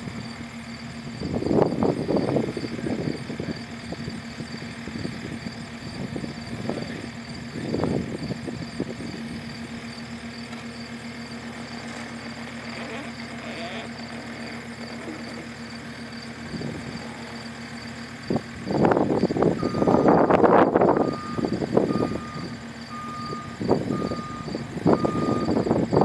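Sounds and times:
loader engine running: 0:00.0 - 0:26.0.

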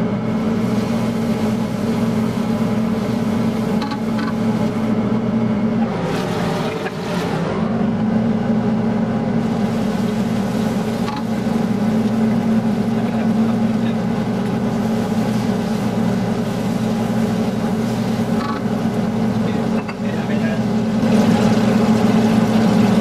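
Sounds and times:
chicken frying in a wok: 0:00.0 - 0:23.0
range hood fan humming: 0:00.0 - 0:23.0
spatula stirring in a wok: 0:09.4 - 0:23.0.

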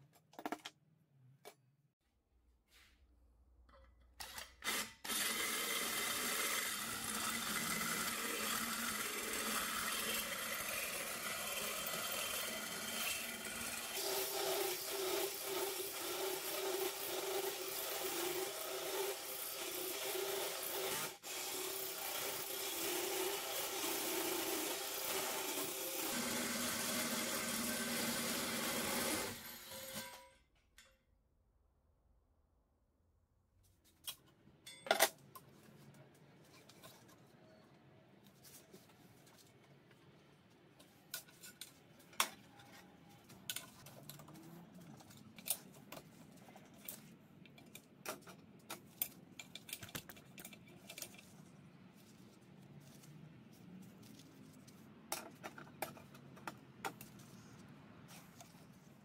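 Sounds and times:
drill motor: 0:04.6 - 0:30.2
hole saw grinding through metal: 0:04.7 - 0:30.3.

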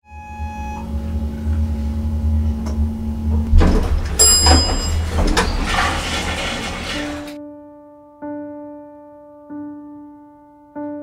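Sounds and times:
elevator hum: 0:00.0 - 0:07.4
elevator doors rattling open: 0:00.8 - 0:07.4.

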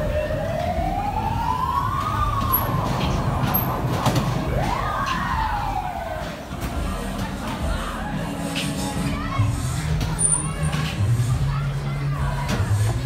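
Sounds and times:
siren wail: 0:00.0 - 0:06.5
fairground ride rumble: 0:00.0 - 0:13.0.

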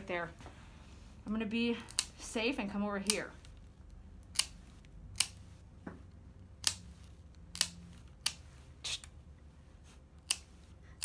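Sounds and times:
nail clippers clicking: 0:04.2 - 0:04.6, 0:05.2 - 0:05.4, 0:06.6 - 0:06.8, 0:07.4 - 0:08.4, 0:10.2 - 0:10.5.

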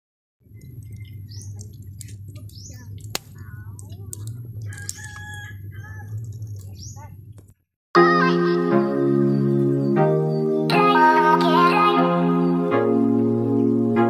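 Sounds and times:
birds chirping: 0:00.4 - 0:07.6
low rumble: 0:00.4 - 0:07.6.

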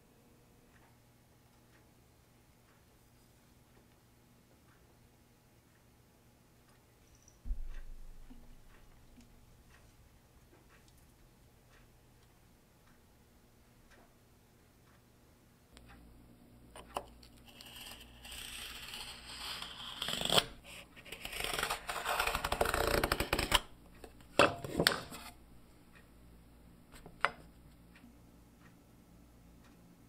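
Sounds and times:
knife scraping wood: 0:17.4 - 0:23.7, 0:24.5 - 0:25.4.

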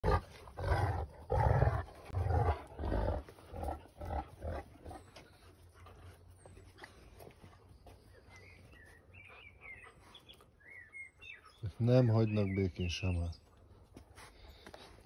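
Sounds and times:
dog growling: 0:00.0 - 0:05.1.

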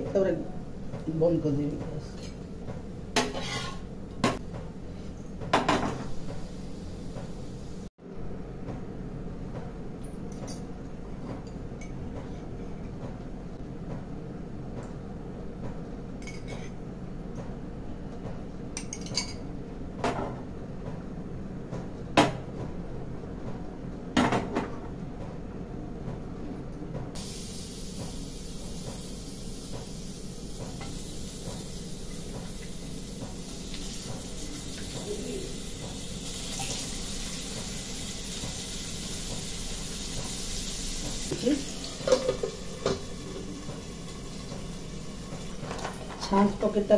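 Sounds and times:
utensils clinking on pan: 0:03.2 - 0:03.8, 0:41.1 - 0:43.1
potatoes frying in hot oil: 0:27.2 - 0:46.9.

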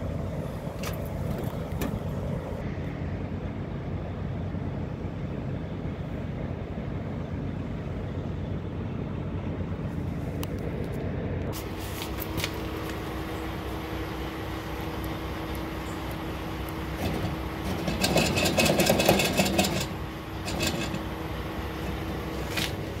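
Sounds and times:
diesel truck engine running: 0:00.0 - 0:23.0
loud rattling: 0:16.8 - 0:23.0.

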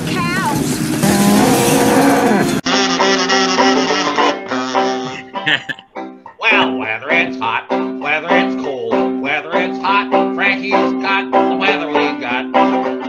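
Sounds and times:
plucked string instrument strumming: 0:01.0 - 0:03.9
harmonica folk tune: 0:02.1 - 0:06.0.

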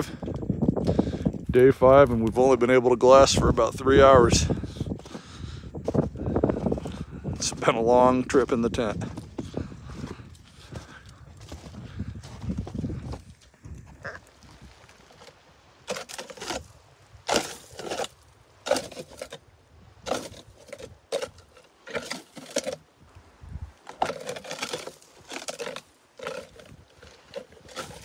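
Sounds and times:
footsteps through dry brush: 0:03.4 - 0:19.4, 0:20.0 - 0:28.0
twigs snapping: 0:20.0 - 0:28.0.

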